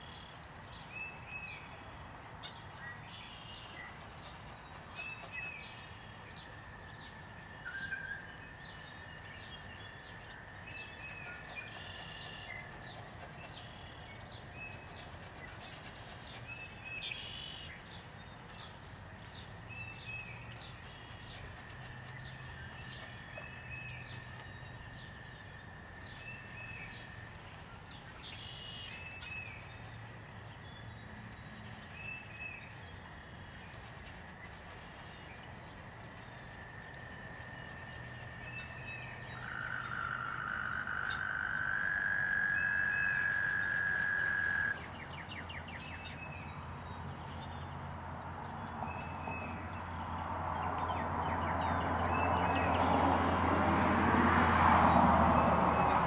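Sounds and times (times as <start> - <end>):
frogs trilling: 36.7 - 45.1.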